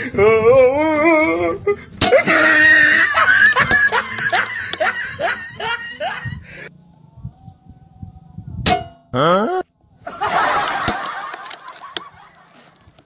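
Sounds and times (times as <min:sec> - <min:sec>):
rising vocal yelps: 0:00.2 - 0:03.3, 0:09.2 - 0:09.7.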